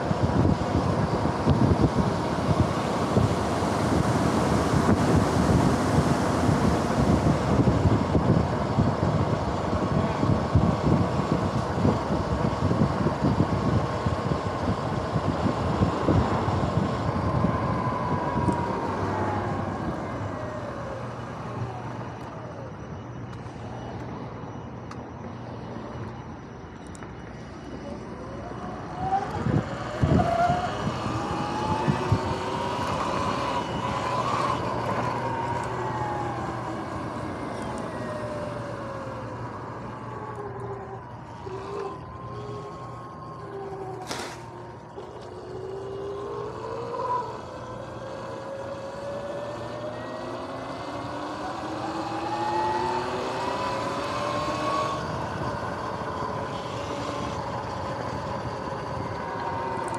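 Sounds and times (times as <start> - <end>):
tyre and wind noise: 0.0 - 20.9, 27.1 - 59.9
electric motor whine: 0.0 - 59.9.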